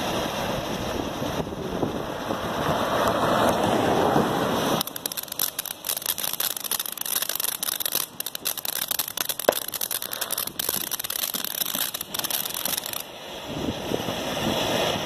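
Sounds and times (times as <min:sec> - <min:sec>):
firework crackling and hissing: 0:00.0 - 0:15.0
sharp firework pop: 0:04.8 - 0:13.0.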